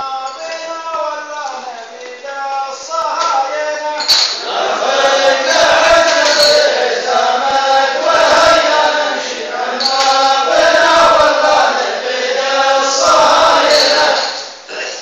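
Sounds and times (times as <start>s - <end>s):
man chanting melodically: 0.0s - 4.2s.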